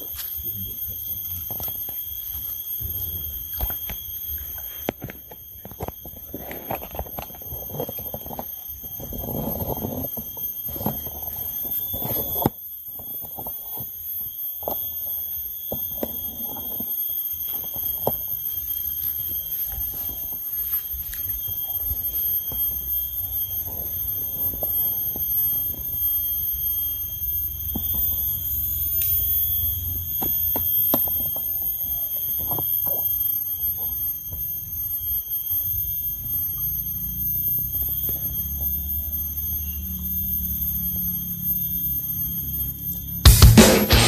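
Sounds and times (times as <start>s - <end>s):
high-pitched whine: 43.0s - 44.0s.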